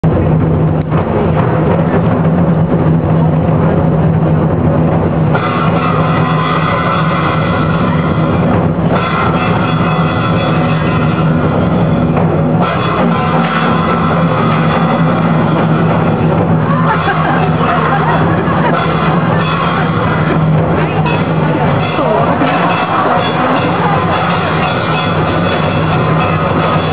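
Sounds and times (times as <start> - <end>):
drums and cymbals: 0.0 - 26.9
held pitched notes: 0.0 - 26.9
traditional theatre music: 0.1 - 26.9.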